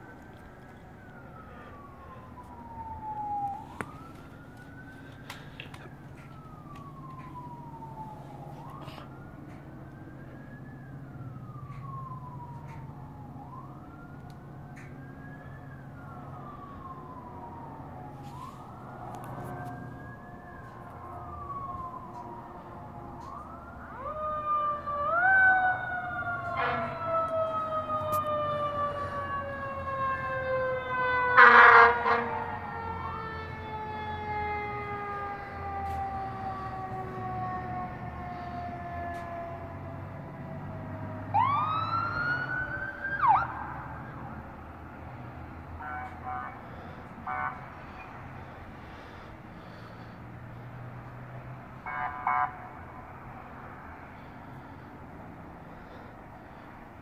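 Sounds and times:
electronic siren wailing: 0.0s - 44.7s, 51.8s - 53.4s
second siren winding down: 0.0s - 56.6s
air horn blast: 26.6s - 27.0s, 31.4s - 32.6s, 45.8s - 46.6s, 47.2s - 47.7s, 51.8s - 52.7s.

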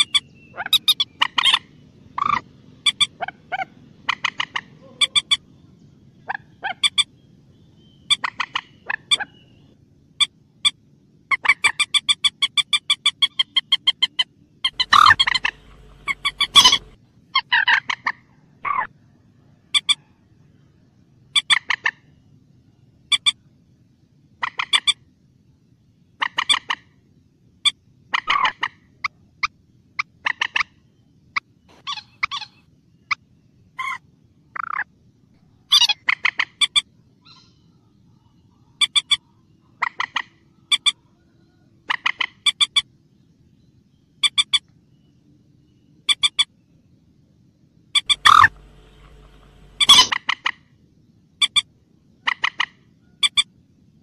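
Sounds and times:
moorhen calling: 0.0s - 5.5s, 6.2s - 10.3s, 11.3s - 18.9s, 48.0s - 50.6s.

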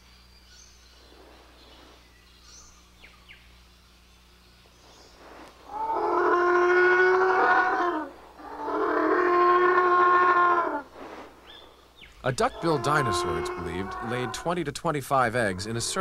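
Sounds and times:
dinosaur calls: 5.7s - 10.9s, 12.3s - 14.6s, 15.4s - 16.0s.

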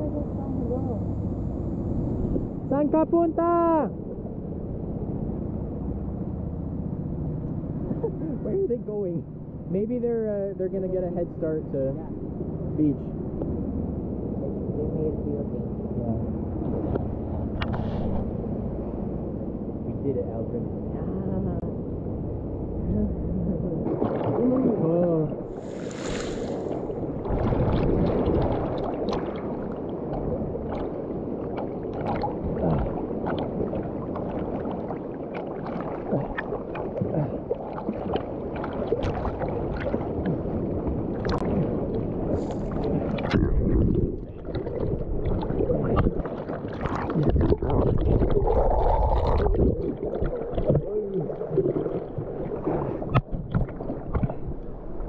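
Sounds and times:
sea water sloshing and splashing: 22.4s - 55.0s.

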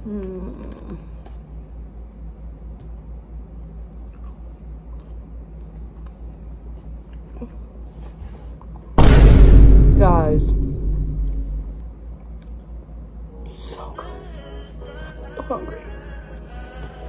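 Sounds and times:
steady low hum: 0.0s - 15.0s
person chewing: 4.0s - 7.8s.

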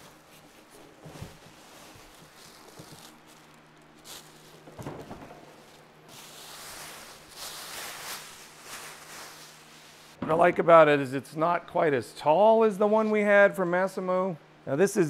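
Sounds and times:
packaging rustling: 0.0s - 10.2s
faint steady hum: 0.0s - 15.0s.

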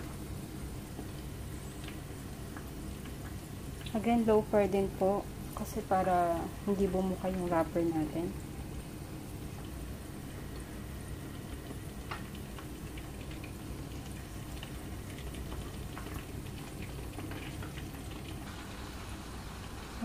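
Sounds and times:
broth simmering in a pot: 0.0s - 20.0s.

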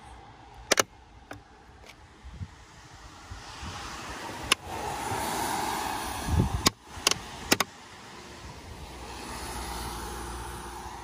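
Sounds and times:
traffic noise: 0.0s - 11.0s
plastic clips clicking loose: 6.6s - 7.7s.

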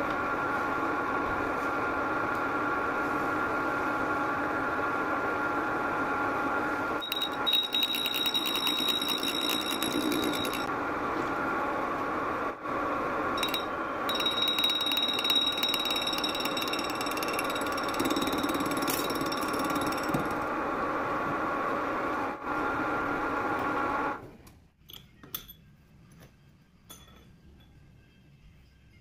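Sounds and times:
metal lathe running: 7.0s - 10.7s, 13.4s - 20.6s.

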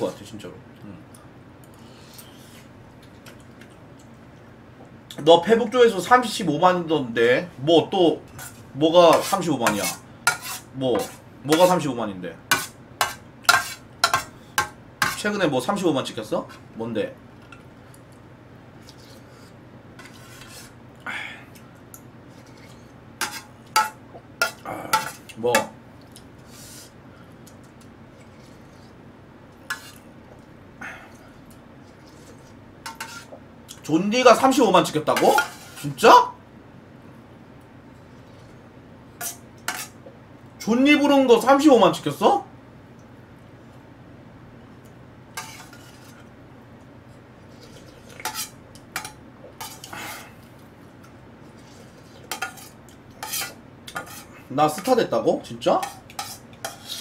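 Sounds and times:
soft eating sounds: 0.1s - 5.3s, 12.6s - 36.0s, 36.8s - 40.6s, 42.4s - 57.0s
metal utensil scraping a pot: 8.4s - 11.2s, 45.4s - 46.2s, 51.6s - 54.9s, 55.8s - 57.0s.

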